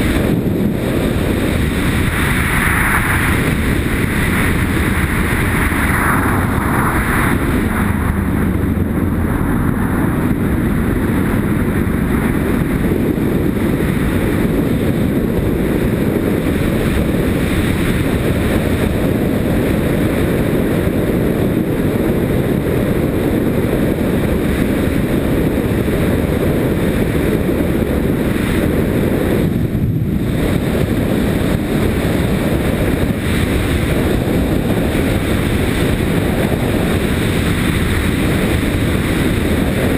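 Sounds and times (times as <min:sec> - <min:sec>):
motorcycle engine: 0:00.0 - 0:21.5
road noise: 0:00.0 - 0:39.9
wind buffeting microphone: 0:00.0 - 0:39.9.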